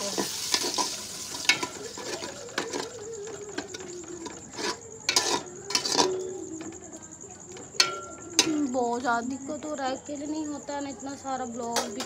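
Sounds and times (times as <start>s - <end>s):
metal spoon scraping a pot: 0.0s - 6.7s
faint sizzle: 0.0s - 12.0s
spoon clinking on pot: 0.2s - 6.7s, 7.8s - 8.7s.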